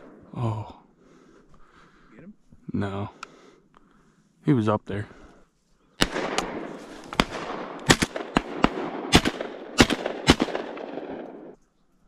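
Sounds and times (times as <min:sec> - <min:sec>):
shotgun blasts: 0:06.0 - 0:11.5.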